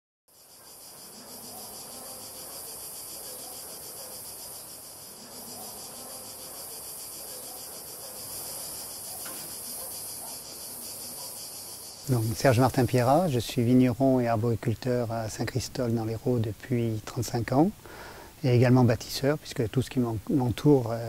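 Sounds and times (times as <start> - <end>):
insects chirring: 0.3 - 21.0.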